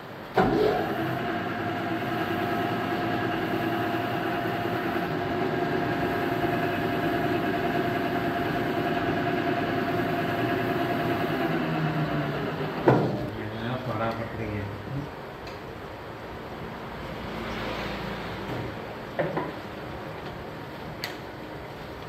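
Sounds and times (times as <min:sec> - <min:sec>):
lathe whine: 0:00.4 - 0:13.3.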